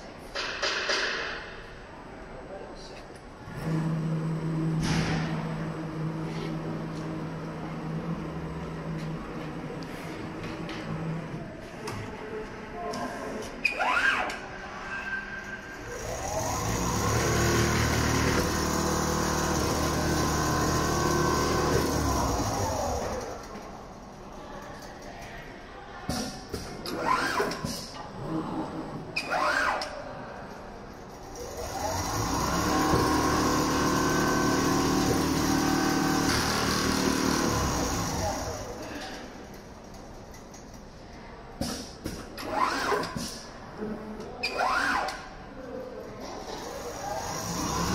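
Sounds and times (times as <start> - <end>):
sewing machine motor hum: 15.8 - 23.6, 31.4 - 38.9, 46.6 - 47.9.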